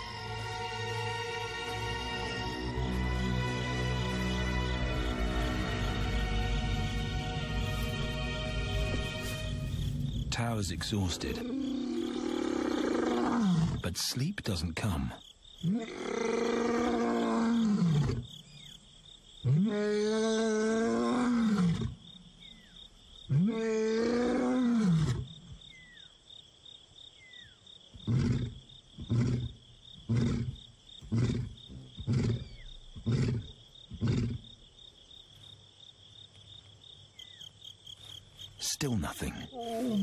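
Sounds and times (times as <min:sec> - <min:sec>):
lion roaring and grunting: 0:11.1 - 0:13.8, 0:15.6 - 0:18.3, 0:19.4 - 0:22.0, 0:23.3 - 0:25.3, 0:28.0 - 0:34.5.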